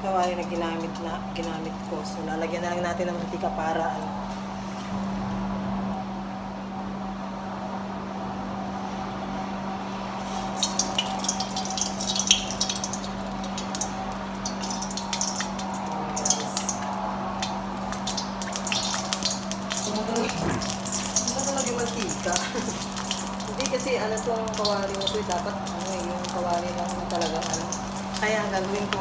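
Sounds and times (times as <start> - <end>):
oil pouring into metal wok: 10.3 - 19.9, 20.6 - 23.6
small irregular ticks: 10.6 - 29.0.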